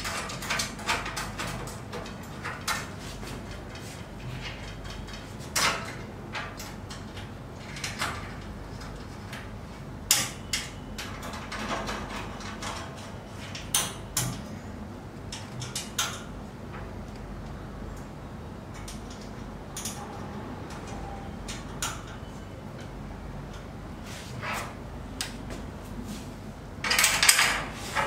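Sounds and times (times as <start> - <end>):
hardware clicks and knocks on metal frame: 10.1 - 14.5, 15.3 - 16.9, 26.8 - 28.0.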